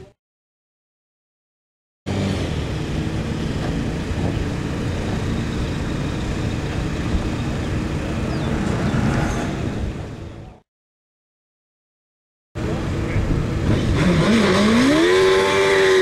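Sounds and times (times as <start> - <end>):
race car engine running: 2.1 - 9.1.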